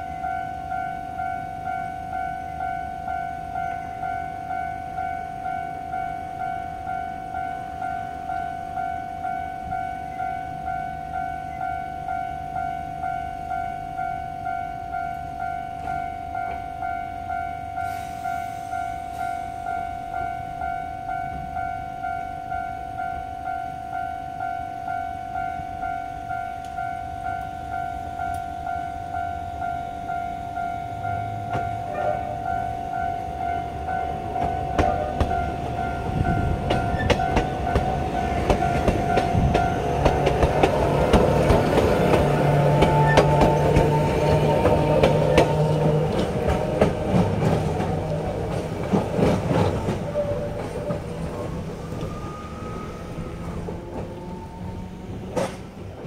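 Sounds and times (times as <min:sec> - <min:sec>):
level-crossing warning bell ringing: 0:00.0 - 0:55.9
train motors humming: 0:25.3 - 0:56.0
train wheels clicking over rail joints: 0:34.2 - 0:52.2, 0:53.1 - 0:56.0.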